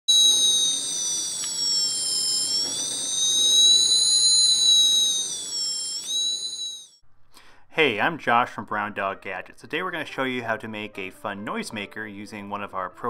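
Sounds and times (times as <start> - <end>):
high-pitched electronic tone: 0.1 - 7.0.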